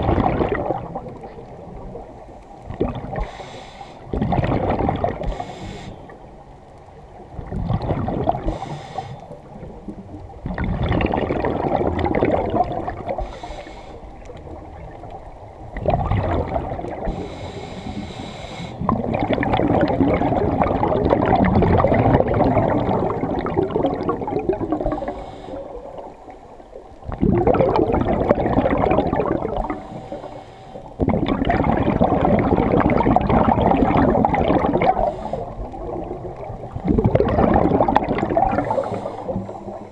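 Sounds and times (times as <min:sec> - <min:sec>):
regulator hissing inhalations: 0:03.2 - 0:04.1, 0:05.3 - 0:06.2, 0:08.5 - 0:09.3, 0:13.2 - 0:14.1, 0:17.1 - 0:18.8, 0:25.0 - 0:25.8, 0:29.8 - 0:30.9, 0:34.9 - 0:35.6, 0:38.6 - 0:39.9
regulator bubbling exhalations: 0:04.1 - 0:05.8, 0:07.6 - 0:08.8, 0:10.5 - 0:13.5, 0:18.8 - 0:26.0, 0:27.1 - 0:30.0, 0:31.0 - 0:39.9.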